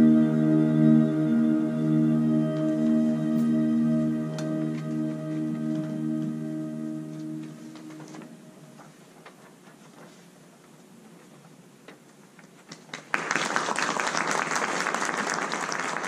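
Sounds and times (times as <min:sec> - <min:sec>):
held music notes: 0:00.0 - 0:09.5
audience applause: 0:12.8 - 0:16.0.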